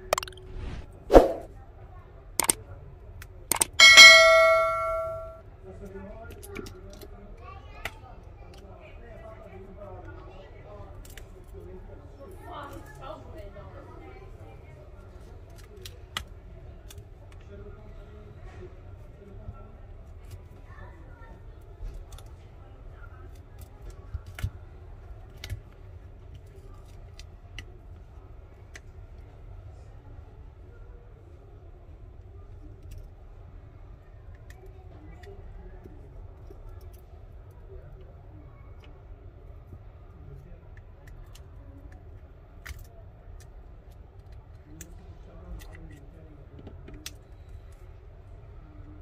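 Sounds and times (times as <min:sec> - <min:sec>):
low steady hum: 0:03.6 - 0:05.4.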